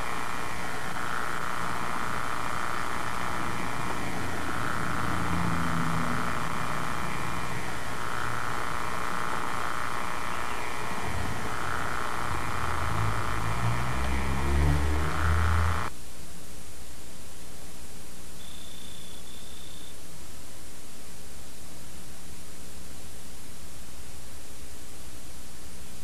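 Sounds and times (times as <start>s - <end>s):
low drone: 0.0s - 15.9s
camcorder hiss and hum: 0.0s - 26.0s
faint wavering whirring tone: 0.0s - 26.0s.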